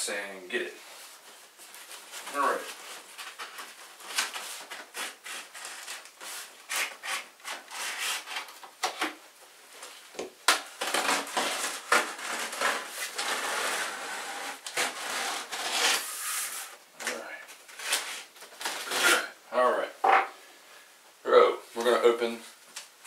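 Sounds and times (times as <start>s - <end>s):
cardboard rubbing and handling: 10.8s - 16.8s.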